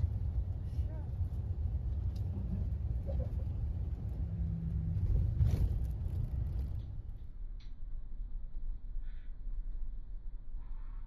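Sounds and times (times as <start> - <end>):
vehicle rumble from inside: 0.0 - 11.0.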